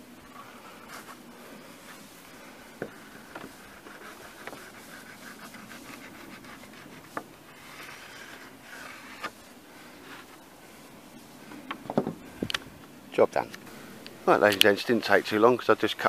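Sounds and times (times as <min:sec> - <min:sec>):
knife scratching wood: 0:02.8 - 0:10.3.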